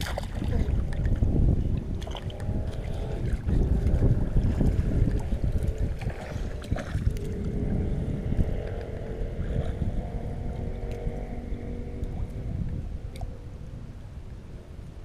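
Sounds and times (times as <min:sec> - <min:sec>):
water sloshing and dripping: 0:00.0 - 0:09.8
wind rumbling on microphone: 0:00.0 - 0:15.0.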